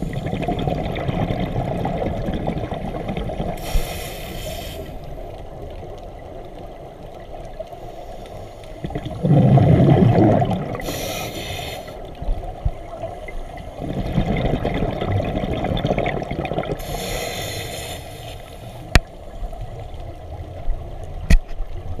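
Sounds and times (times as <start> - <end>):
exhaled bubbles gurgling: 0.0 - 4.0, 8.8 - 17.6
scuba regulator hissing inhale: 3.6 - 5.3, 7.7 - 8.9, 10.8 - 12.2, 16.8 - 18.9.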